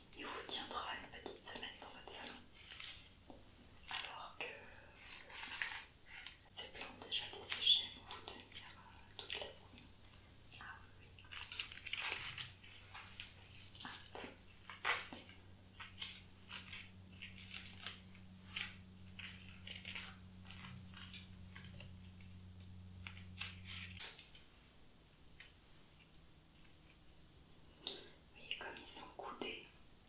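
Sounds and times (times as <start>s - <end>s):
low steady hum: 0.0s - 30.0s
rustling of flower stems: 2.2s - 4.1s, 4.9s - 6.5s, 8.3s - 24.5s.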